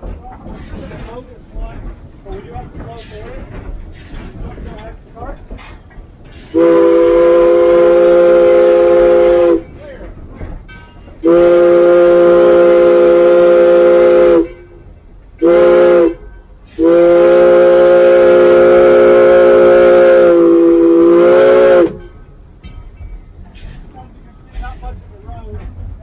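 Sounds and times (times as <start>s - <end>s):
steam locomotive whistle: 6.5s - 9.7s, 11.2s - 14.8s, 15.4s - 22.2s.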